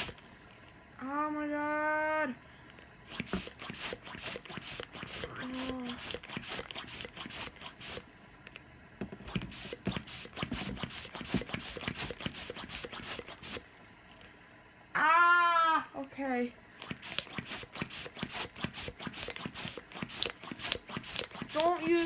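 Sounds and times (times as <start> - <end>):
balloon pump hissing puffs: 0.0 - 0.6, 3.0 - 8.1, 9.2 - 13.7, 16.7 - 22.0.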